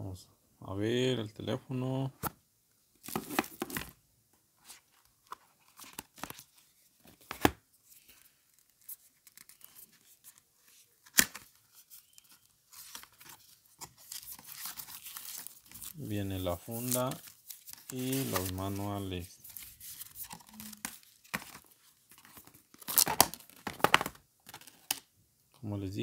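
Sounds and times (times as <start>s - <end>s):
cardboard scraping and rustling: 3.1s - 3.9s, 12.0s - 24.7s.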